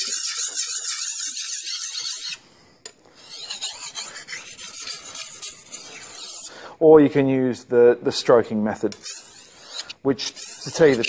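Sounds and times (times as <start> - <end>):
sharpening stone scraping blade: 0.0 - 2.4, 3.2 - 6.6, 8.9 - 11.0.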